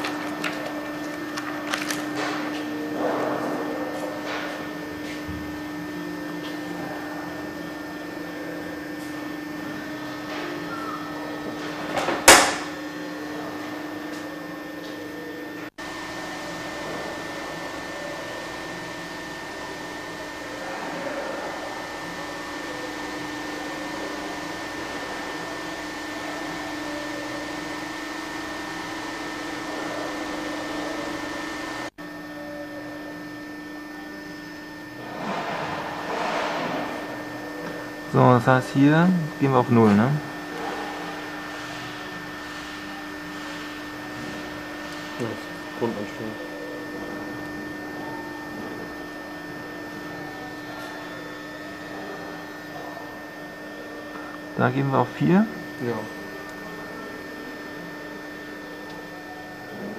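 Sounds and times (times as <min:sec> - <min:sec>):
steady mechanical hum: 0:00.0 - 0:59.9
loud sharp click: 0:12.3 - 0:12.7.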